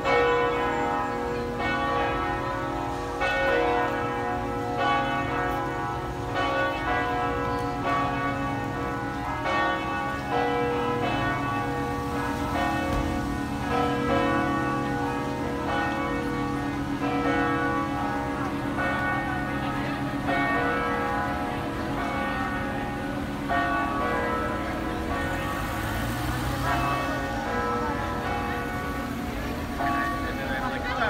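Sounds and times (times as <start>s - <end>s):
church bells ringing: 0.0s - 31.0s.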